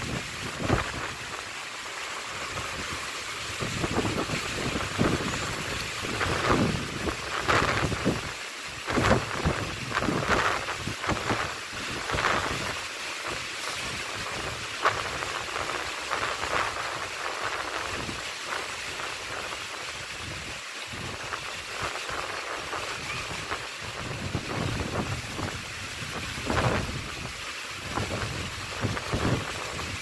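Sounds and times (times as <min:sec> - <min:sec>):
wind buffeting microphone: 0:00.0 - 0:01.4, 0:02.5 - 0:12.7, 0:20.1 - 0:30.0
choppy sea waves: 0:00.0 - 0:30.0.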